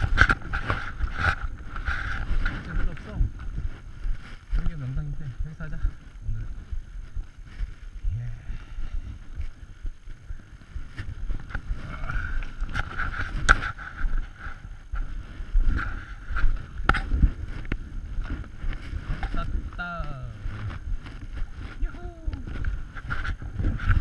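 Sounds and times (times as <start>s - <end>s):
footsteps crunching through snow: 0.0s - 24.0s
wind rumbling on microphone: 0.0s - 24.0s.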